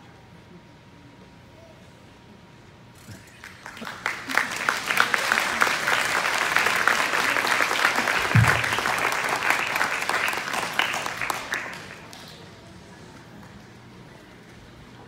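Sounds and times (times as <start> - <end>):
audience applause: 3.2 - 12.5.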